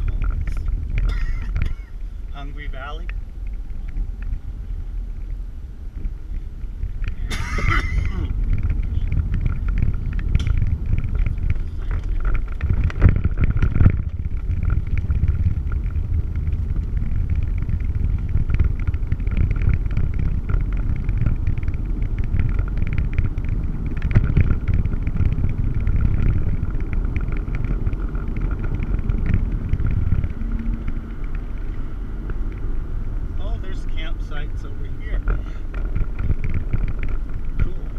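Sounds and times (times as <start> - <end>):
rattles and crunches: 0.0 - 4.5, 5.9 - 37.9
engine and road rumble: 0.0 - 37.9
vehicle jolts: 6.6 - 32.2.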